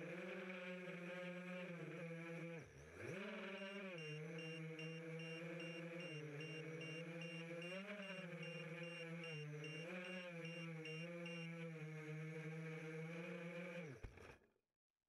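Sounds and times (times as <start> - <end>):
drone motors whining: 1.9 - 14.2
high beeping: 4.0 - 11.5.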